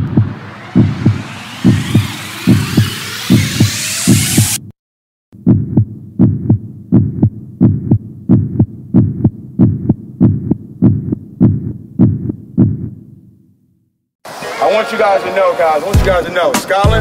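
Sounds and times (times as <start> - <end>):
heartbeat thumps: 0.0 - 4.7, 5.4 - 13.1
rising whoosh: 0.0 - 4.7.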